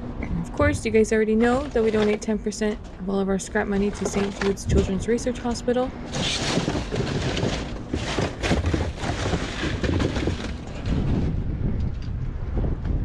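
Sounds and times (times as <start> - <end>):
cardboard and plastic bags rustling: 0.9 - 11.2
wind rumbling on microphone: 6.1 - 13.0.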